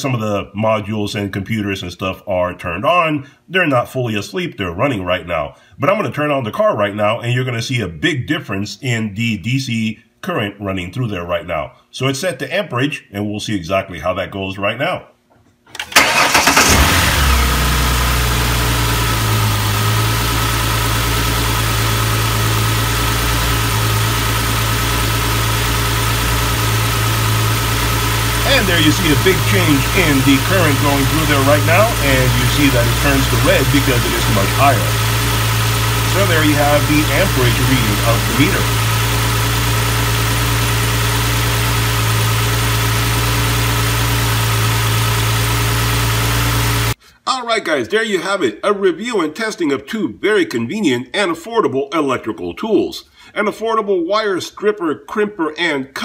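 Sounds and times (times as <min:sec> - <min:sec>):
car starter cranking: 0:15.8 - 0:47.0
car engine idling: 0:16.0 - 0:47.0.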